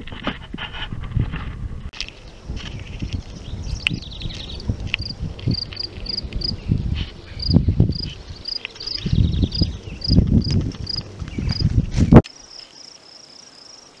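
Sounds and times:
insect chirping: 0:03.5 - 0:06.6, 0:07.4 - 0:14.0.

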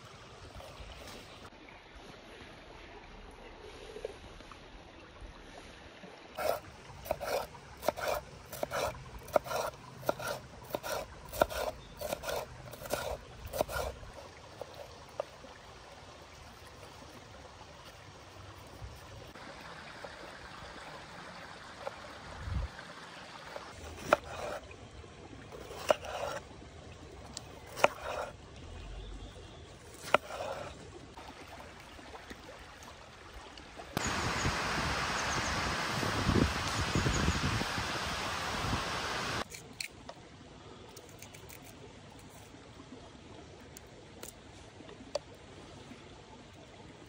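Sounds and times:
knife chopping on wooden board: 0:06.4 - 0:13.9.

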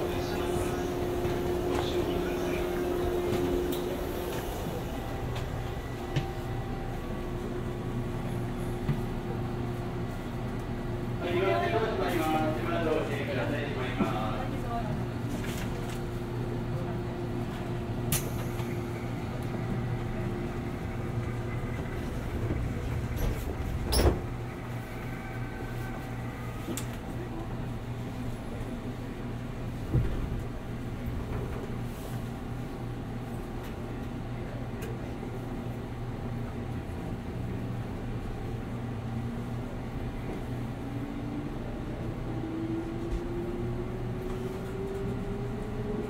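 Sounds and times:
train car interior hum: 0:00.0 - 0:46.0.

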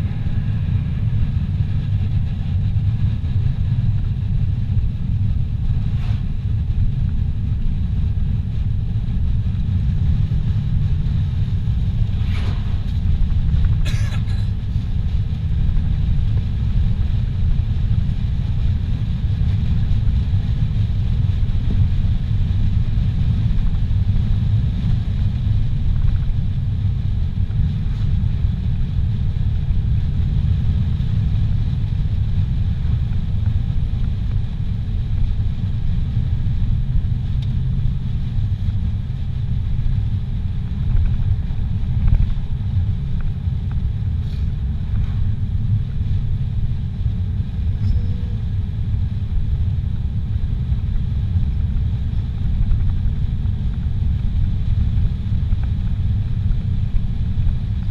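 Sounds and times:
car road and engine rumble: 0:00.0 - 0:57.9.

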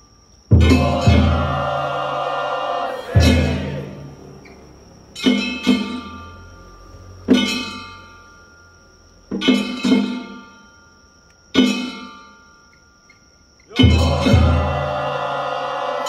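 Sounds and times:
drum strokes: 0:00.5 - 0:04.1, 0:13.7 - 0:15.4.

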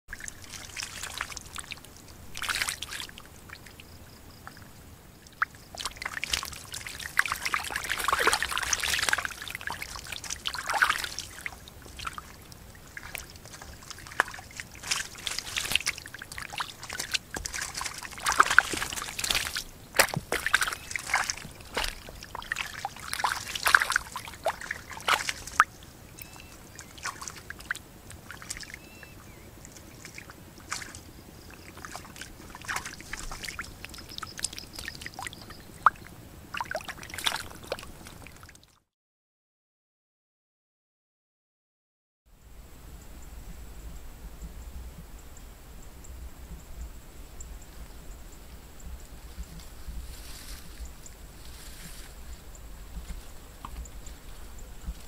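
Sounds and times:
fish splashing in shallow water: 0:00.1 - 0:38.8.

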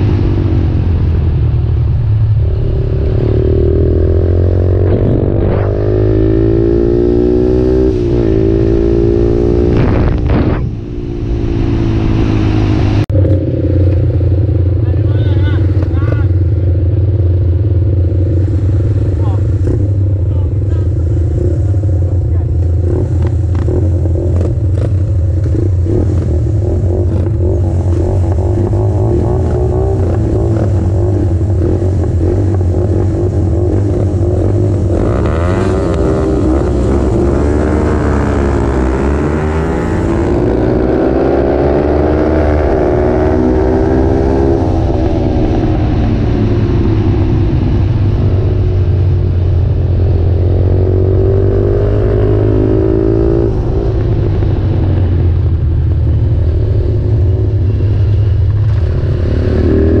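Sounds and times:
wind rumble on microphone: 0:00.0 - 1:00.0
small motorcycle engine revving: 0:18.4 - 0:45.5, 0:56.5 - 1:00.0.

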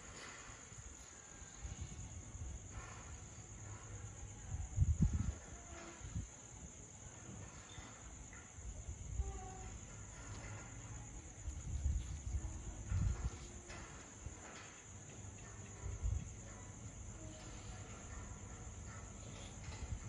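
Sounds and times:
insects chirring: 0:00.0 - 0:20.0
low rumbling on microphone: 0:04.3 - 0:06.3.

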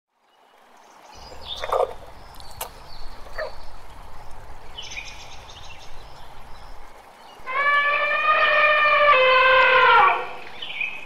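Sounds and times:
animal calls: 0:03.2 - 0:03.6, 0:07.4 - 0:10.4.

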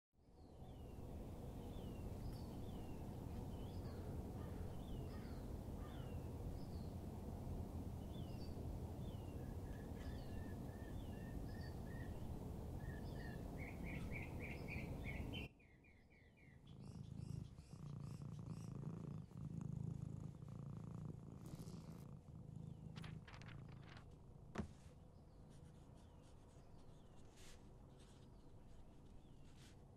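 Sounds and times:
small birds chirping: 0:00.4 - 0:07.1, 0:07.8 - 0:24.0, 0:24.6 - 0:29.9
cat purring: 0:00.7 - 0:15.5, 0:16.5 - 0:24.6.

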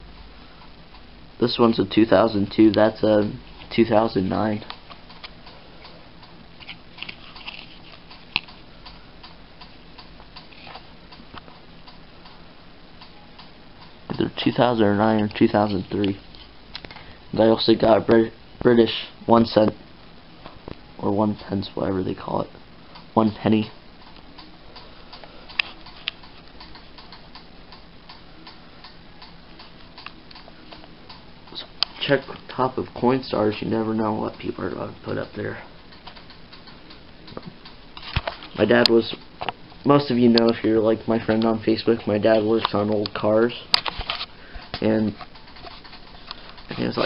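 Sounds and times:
faint ticking: 0:02.5 - 0:17.2, 0:22.8 - 0:38.0.

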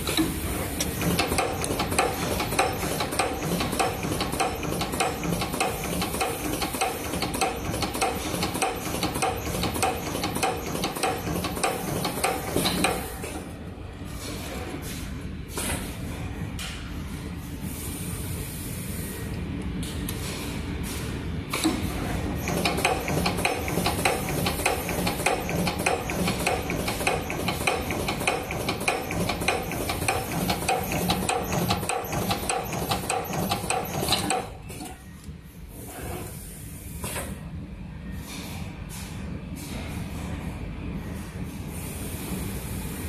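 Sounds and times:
crimping machine clicking strokes: 0:22.4 - 0:34.6.

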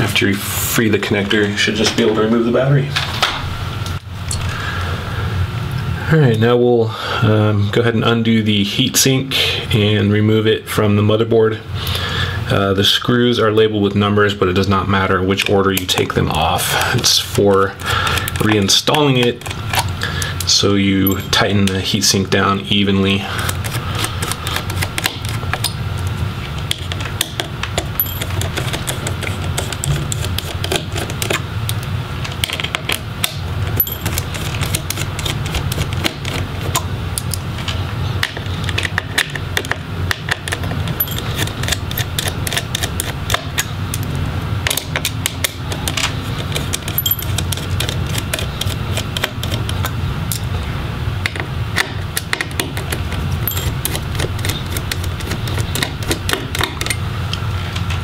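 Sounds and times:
screwdriver clicking on metal screws: 0:26.7 - 0:31.8, 0:32.4 - 0:37.4, 0:38.7 - 0:43.7, 0:44.7 - 0:50.4, 0:52.2 - 0:57.0
low hum: 0:40.6 - 0:51.3.

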